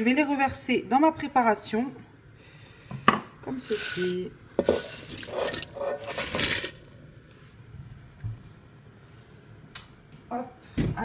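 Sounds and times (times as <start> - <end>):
chips sliding and splashing into sauce: 4.8 - 7.1.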